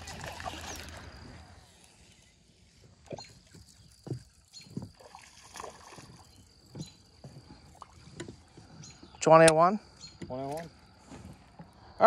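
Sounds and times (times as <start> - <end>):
fish splashing at water surface: 0.0 - 1.6, 3.1 - 8.1.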